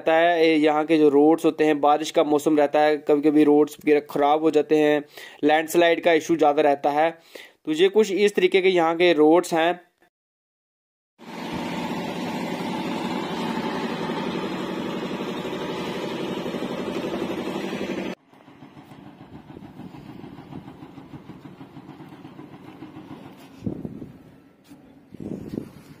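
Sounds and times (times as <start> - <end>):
vehicle engine running: 11.2 - 26.0.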